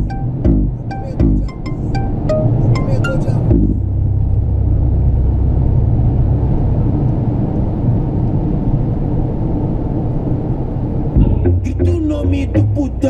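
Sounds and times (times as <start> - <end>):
deep bass from car stereo: 0.0 - 8.2, 11.2 - 13.0.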